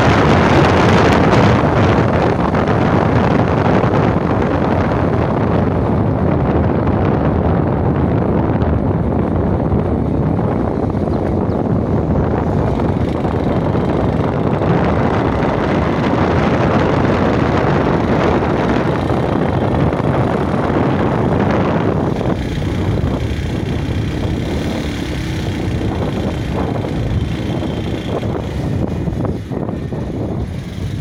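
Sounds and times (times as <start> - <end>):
vehicle road and engine noise: 0.0 - 31.0
wind rushing over microphone: 0.0 - 31.0.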